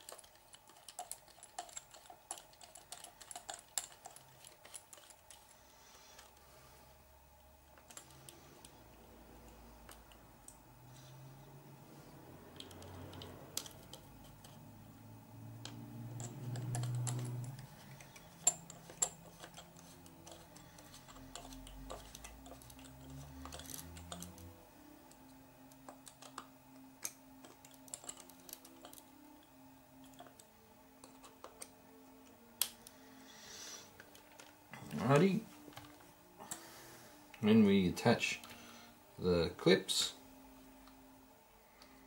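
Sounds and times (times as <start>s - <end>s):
screwdriver and small parts clicking: 12.5s - 14.6s, 15.6s - 29.2s, 30.0s - 32.9s.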